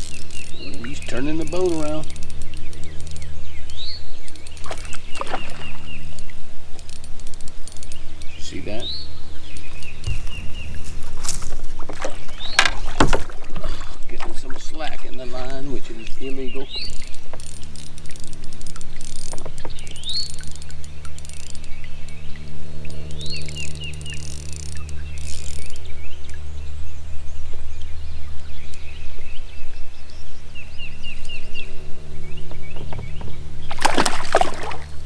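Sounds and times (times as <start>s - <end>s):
songbirds chirping: 0.0s - 35.0s
steady low hum: 0.0s - 35.0s
fish splashing at surface: 33.7s - 35.0s.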